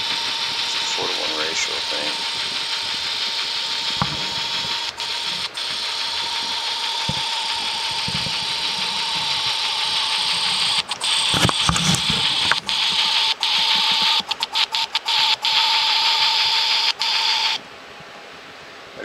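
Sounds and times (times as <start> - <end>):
steam hiss: 0.0 - 14.2
thin speaker whine: 0.0 - 19.0.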